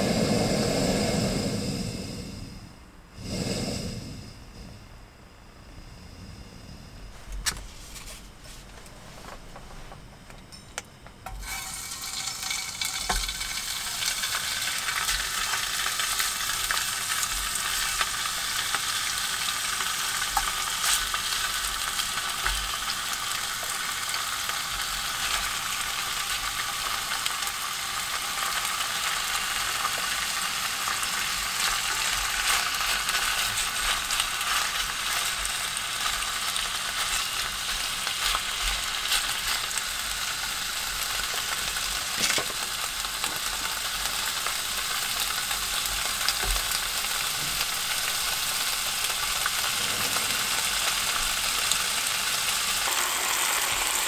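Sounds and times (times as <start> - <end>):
meat sizzling in a tin: 11.3 - 54.0.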